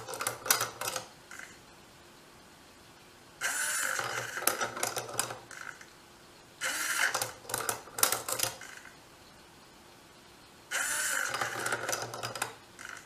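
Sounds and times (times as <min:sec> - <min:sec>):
servo whirring: 0:03.4 - 0:04.8, 0:06.6 - 0:07.3, 0:10.7 - 0:13.0.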